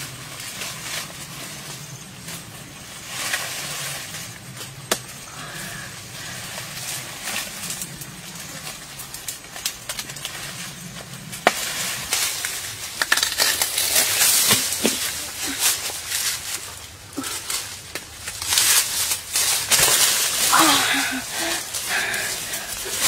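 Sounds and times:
leaves rustling: 0.0 - 23.0
sharp snaps and knocks: 4.6 - 5.2, 11.3 - 15.2.

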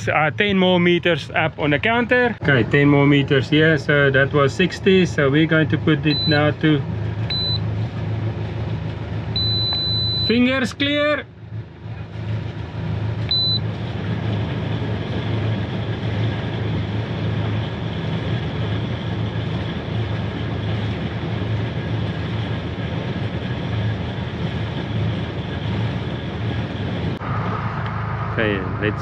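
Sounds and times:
short high beep: 6.1 - 6.6, 7.3 - 7.6, 9.4 - 10.4, 13.3 - 13.6.

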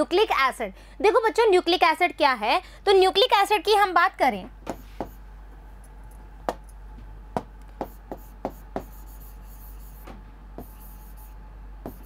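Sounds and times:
low mains hum: 0.0 - 12.0
pen tapping and scraping: 7.8 - 12.0.

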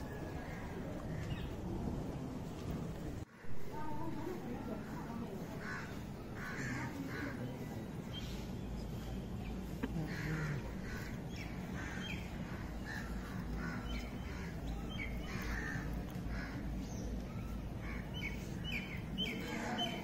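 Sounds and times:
crows cawing: 5.6 - 7.7, 10.0 - 16.8.

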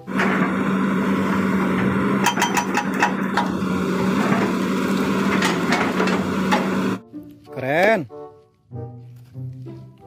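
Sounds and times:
excavator engine humming: 0.0 - 7.0.

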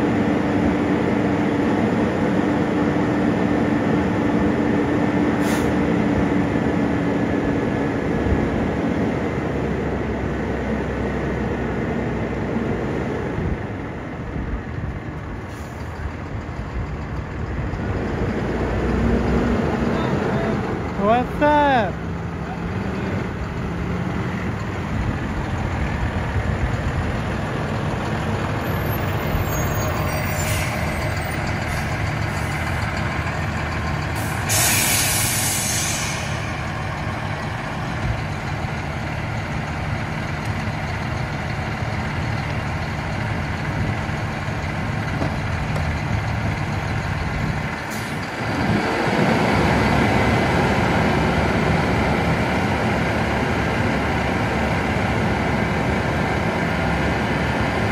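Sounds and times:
diesel engine idling: 0.0 - 57.9
air brakes hissing: 5.4 - 5.9, 15.4 - 16.0, 29.0 - 32.8, 34.1 - 36.6, 47.9 - 48.3.

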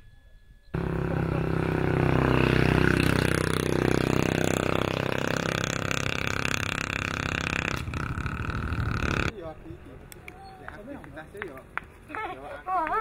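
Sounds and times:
engine droning: 0.7 - 10.9.

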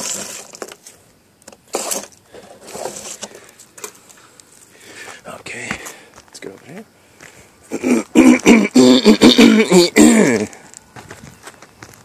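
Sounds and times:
footsteps scuffing on roof shingles: 5.0 - 7.5, 10.4 - 12.0.

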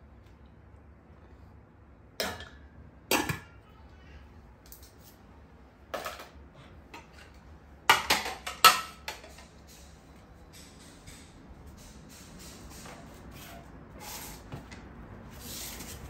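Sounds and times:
kitchenware clinking: 7.9 - 9.4.

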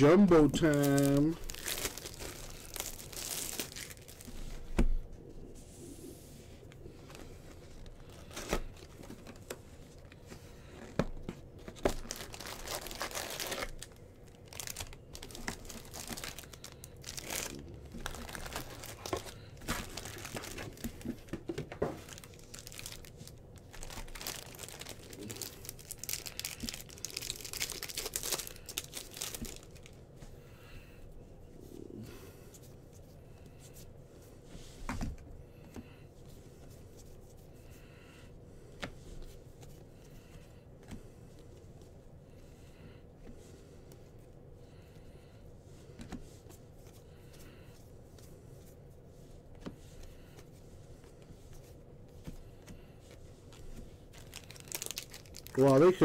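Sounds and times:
wrappers torn and crinkled: 0.3 - 4.3, 11.6 - 21.0, 22.0 - 30.0, 53.4 - 56.0.

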